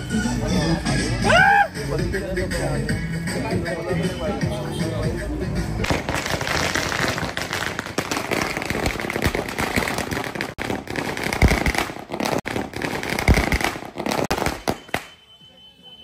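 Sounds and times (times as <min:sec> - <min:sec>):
firecrackers crackling: 0:05.7 - 0:16.0.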